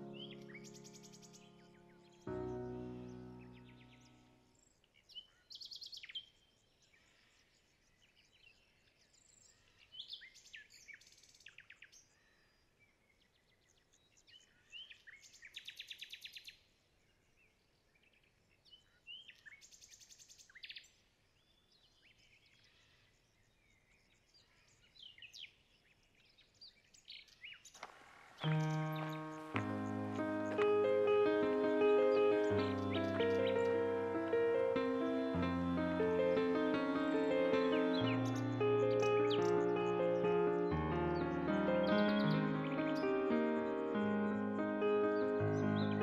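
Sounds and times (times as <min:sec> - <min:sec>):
songbird chirping and trilling: 0:00.0 - 0:16.6, 0:17.4 - 0:46.0
faint outdoor hiss: 0:27.6 - 0:46.0.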